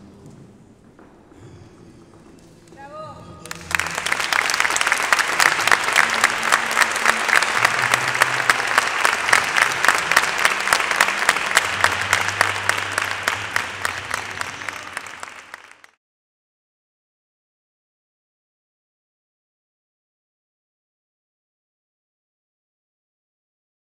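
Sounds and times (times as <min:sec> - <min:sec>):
audience applauding: 0:03.4 - 0:16.0.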